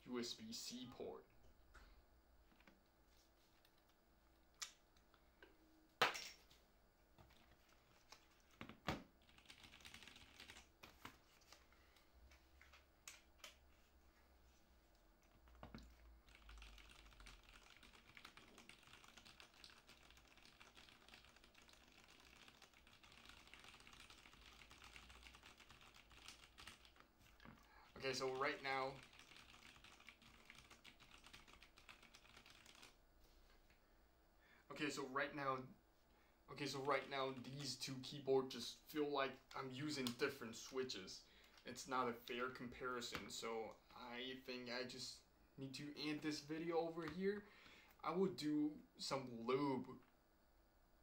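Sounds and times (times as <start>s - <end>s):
mechanical keyboard typing: 9.2s - 10.7s, 16.3s - 27.0s, 28.0s - 33.0s.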